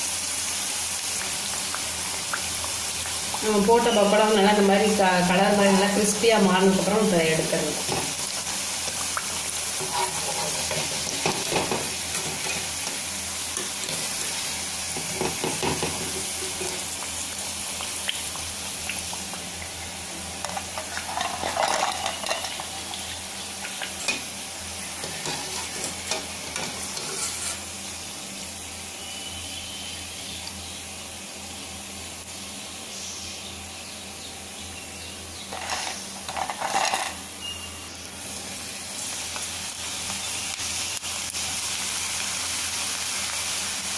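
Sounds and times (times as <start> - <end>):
oil sizzling: 0.0 - 43.9
metal ladle clinking and scraping: 20.4 - 22.7, 25.0 - 27.6.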